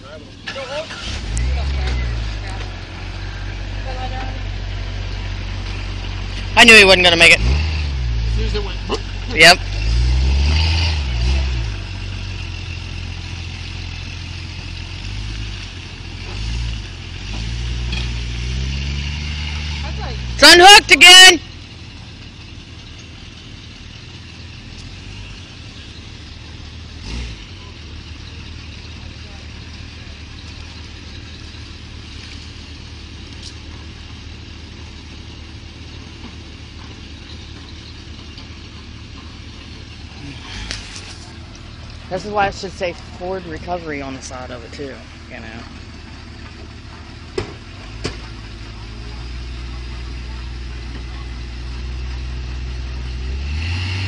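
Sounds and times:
truck engines idling: 0:00.0 - 0:54.0
car engine revving hard: 0:06.1 - 0:13.5, 0:14.2 - 0:21.3, 0:26.9 - 0:27.6, 0:51.2 - 0:54.0.

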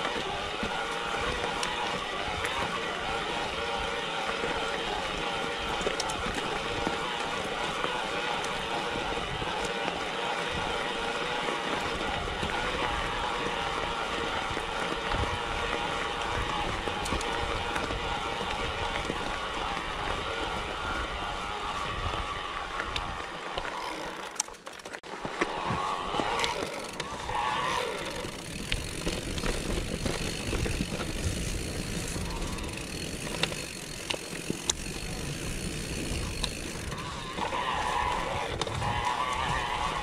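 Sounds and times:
bike tyres rolling on gravel: 0:00.0 - 0:40.0
bike clicking and knocking: 0:22.8 - 0:40.0.

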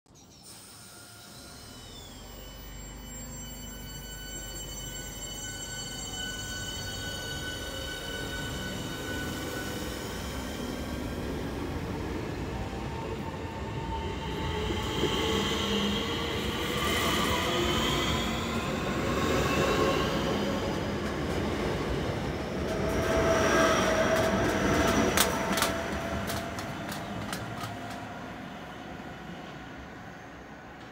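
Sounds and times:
electric train motors whining: 0:00.2 - 0:28.6
train wheels rumbling: 0:03.9 - 0:30.9
wheels clicking on track: 0:22.6 - 0:28.3.

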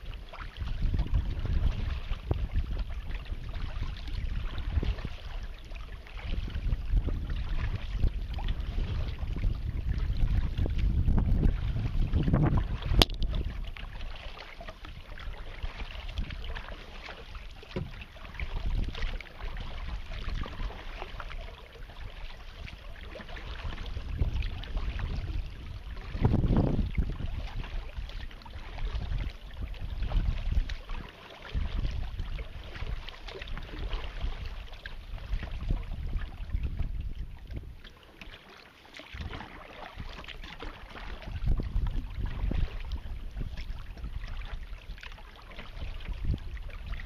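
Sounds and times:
wind rumbling on microphone: 0:00.0 - 0:38.4, 0:39.0 - 0:47.0
water splashing against kayak hull: 0:00.0 - 0:47.0.

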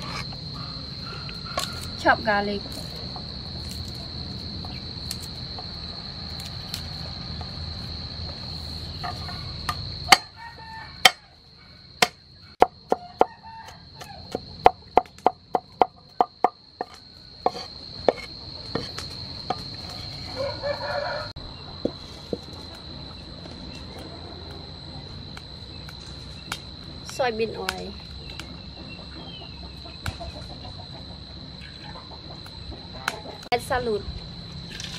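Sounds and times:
cleaver chopping on wooden board: 0:14.3 - 0:19.7.

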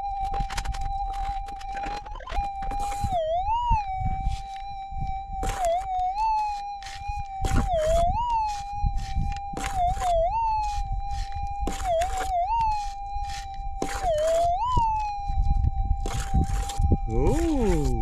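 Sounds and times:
metal detector warbling tone: 0:00.0 - 0:18.0
pick striking gravelly ground: 0:05.4 - 0:15.1.

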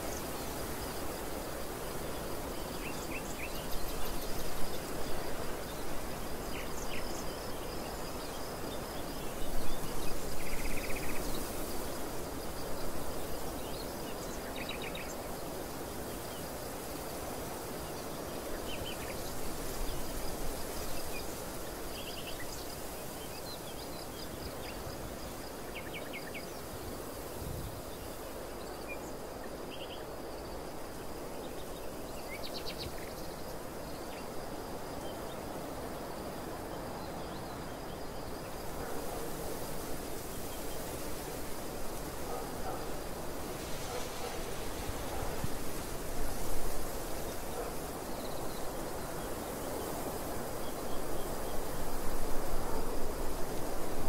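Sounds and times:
wind blowing in gusts: 0:00.0 - 0:54.0.

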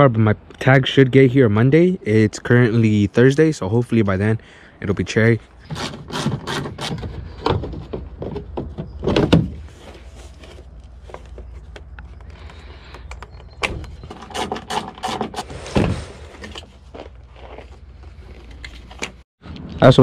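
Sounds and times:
plastic tail light clicking and scraping: 0:05.7 - 0:17.6.

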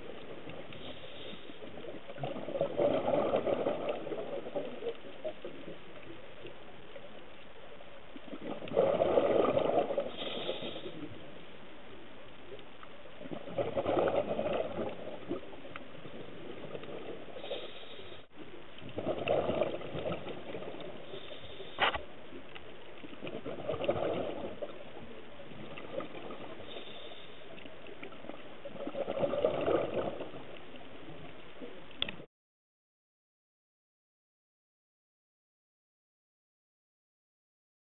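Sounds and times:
exhaled bubbles underwater: 0:00.0 - 0:32.2
regulator hiss: 0:10.1 - 0:11.1.

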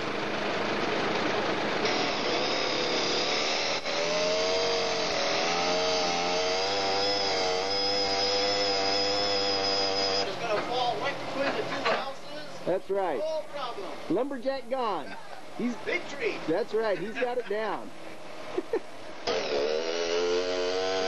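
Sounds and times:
chainsaw cutting tree trunk: 0:01.8 - 0:10.3, 0:19.2 - 0:21.0.

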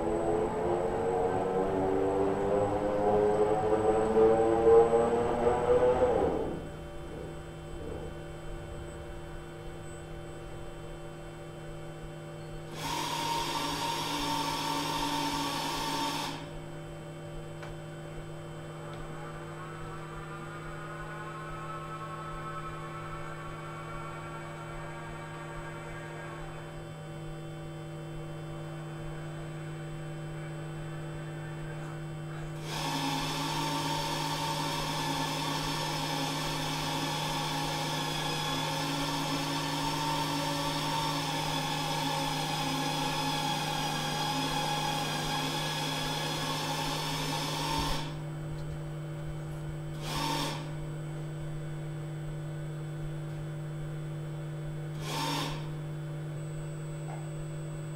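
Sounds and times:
electrical hum: 0:00.0 - 0:57.9
short motor whirr: 0:12.7 - 0:16.5, 0:32.6 - 0:48.2, 0:50.0 - 0:50.8, 0:54.9 - 0:55.8
robotic arm motors whining: 0:18.6 - 0:27.8, 0:54.9 - 0:55.8.

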